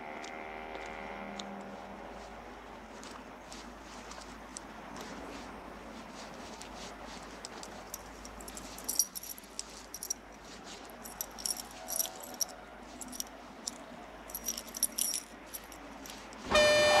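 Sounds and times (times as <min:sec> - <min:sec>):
metallic jingling and clicking: 0:07.4 - 0:16.5.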